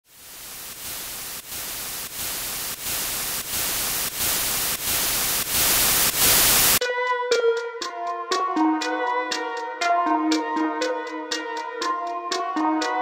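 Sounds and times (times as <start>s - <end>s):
white-noise static: 0.0s - 6.8s.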